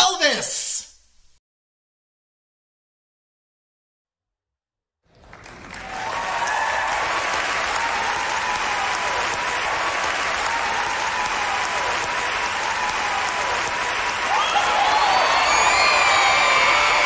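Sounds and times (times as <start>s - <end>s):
audience applause: 5.1s - 17.0s.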